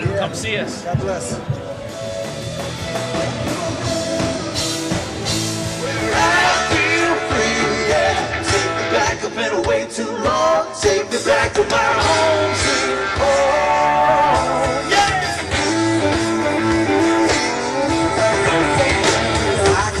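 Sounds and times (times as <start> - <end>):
live rock band: 0.0 - 20.0
electric guitar: 0.9 - 20.0
person singing: 5.7 - 20.0.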